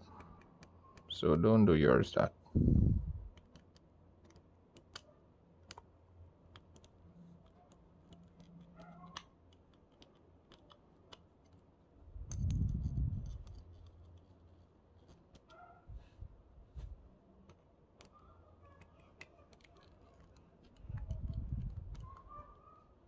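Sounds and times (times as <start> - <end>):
small metal parts clicking: 12.2 - 14.2.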